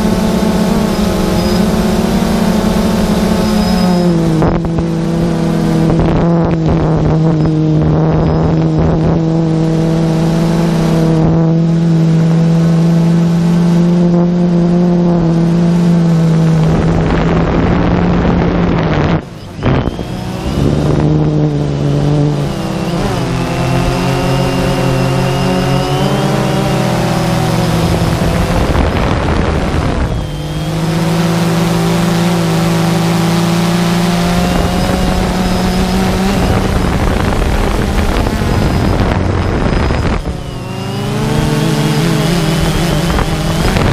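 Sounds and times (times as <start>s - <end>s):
drone motors humming: 0.0s - 43.9s
wind rushing: 34.3s - 43.9s.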